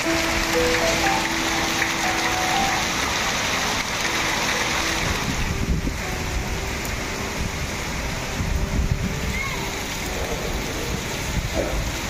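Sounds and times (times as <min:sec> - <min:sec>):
heavy rain pouring: 0:00.0 - 0:12.0
wind gusts buffeting microphone: 0:04.8 - 0:12.0.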